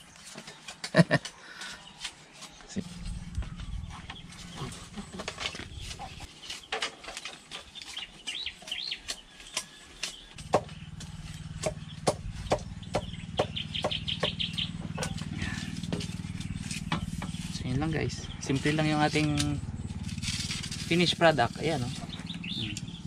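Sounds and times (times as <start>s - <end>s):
birds chirping: 0.0s - 23.0s
knife chopping bamboo: 8.6s - 17.5s.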